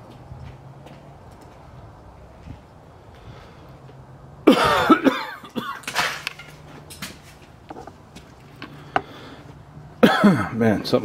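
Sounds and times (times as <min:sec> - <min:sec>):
man coughing hard: 0:04.5 - 0:05.9, 0:10.0 - 0:10.6.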